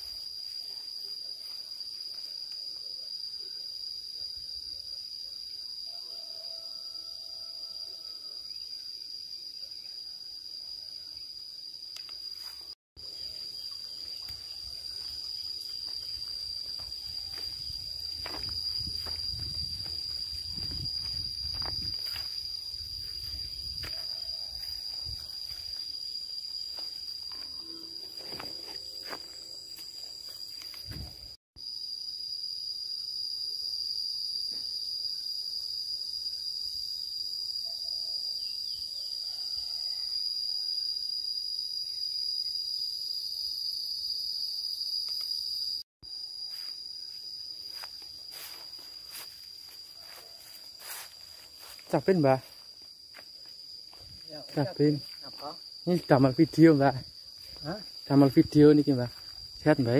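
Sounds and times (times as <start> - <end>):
insects chorus: 0.0 - 59.9
footsteps on a path: 14.0 - 31.4, 46.4 - 55.5.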